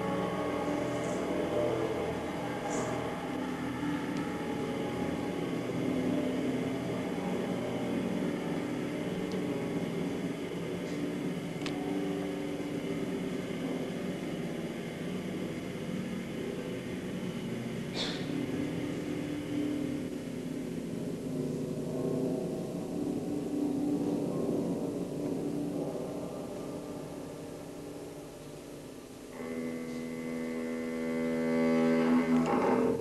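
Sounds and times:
low electronic drone: 0.0s - 33.0s.

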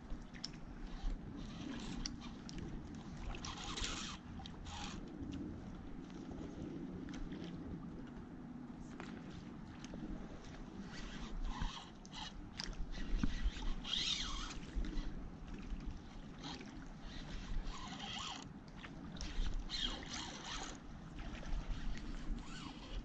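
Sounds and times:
wind on microphone: 0.0s - 18.4s, 19.1s - 23.0s
fishing reel cranking: 0.8s - 2.4s, 3.4s - 5.0s, 10.9s - 15.2s, 16.4s - 18.5s, 19.2s - 20.8s, 21.8s - 23.0s.

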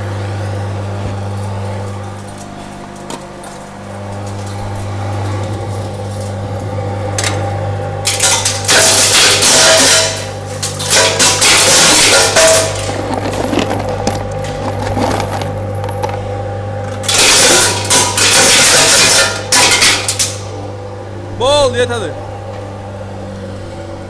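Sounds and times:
crusher motor hum: 0.0s - 24.0s
crusher rattling and clattering: 8.0s - 16.2s.

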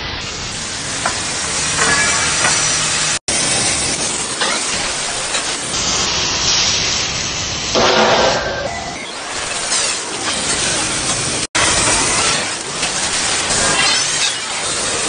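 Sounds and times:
welder hissing: 0.0s - 15.0s
angle grinder grinding steel: 0.6s - 6.0s.

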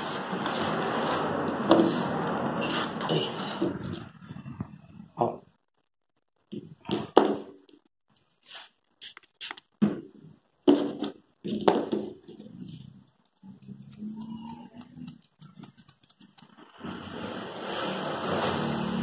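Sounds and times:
scissors snipping fur: 12.6s - 19.0s.

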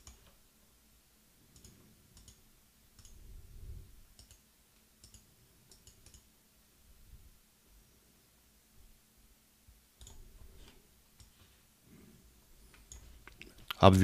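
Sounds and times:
soft low rumble: 3.2s - 4.1s.

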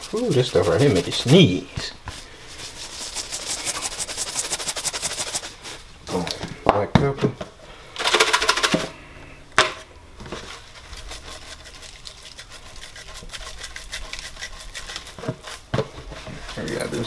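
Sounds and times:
seasoning shaker rattling: 0.0s - 1.6s, 2.6s - 5.6s, 10.5s - 15.7s.

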